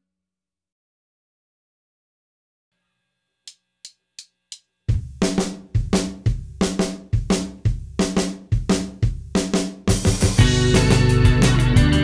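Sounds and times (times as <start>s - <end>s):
indie rock band playing: 9.8s - 12.0s.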